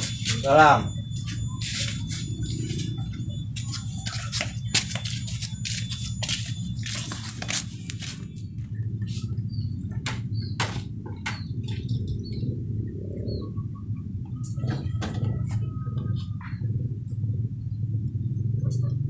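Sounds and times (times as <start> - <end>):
thin high whine: 0.0 - 10.6
bird chirps: 0.0 - 15.8
low rumble: 0.0 - 19.0.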